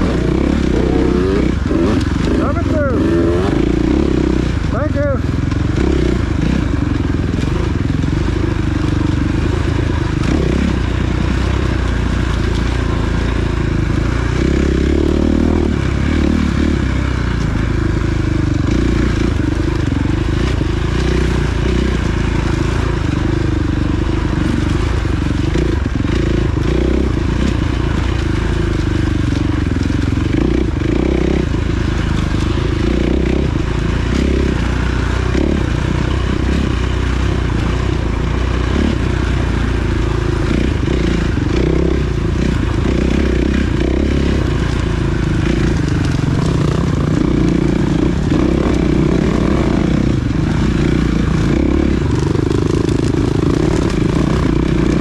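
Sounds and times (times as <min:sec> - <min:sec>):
wind rumble: 0:00.0 - 0:04.8
motorcycle engine revving: 0:00.0 - 0:55.0
trail clatter: 0:00.0 - 0:55.0.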